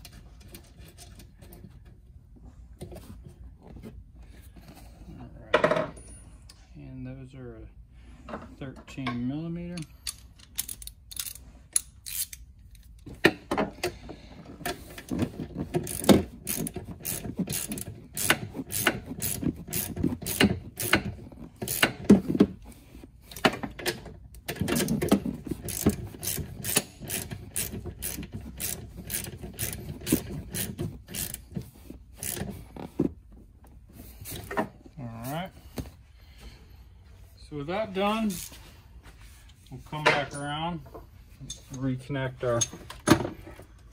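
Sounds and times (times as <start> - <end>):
socket ratchet clicking: 9.8 - 12.9.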